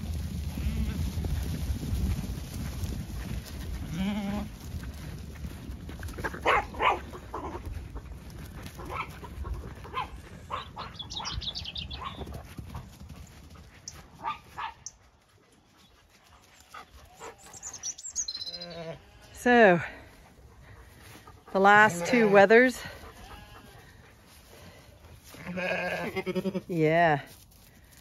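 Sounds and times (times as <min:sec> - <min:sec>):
sheep bleating: 0:03.8 - 0:04.5, 0:18.4 - 0:19.6, 0:21.8 - 0:23.8, 0:25.3 - 0:26.8
dogs barking: 0:06.4 - 0:07.6, 0:08.8 - 0:12.3, 0:14.1 - 0:15.0, 0:16.8 - 0:18.0.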